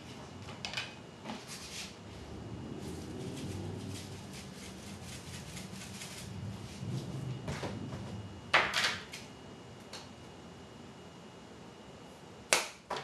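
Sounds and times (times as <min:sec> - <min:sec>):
low rumble: 0:02.1 - 0:08.5.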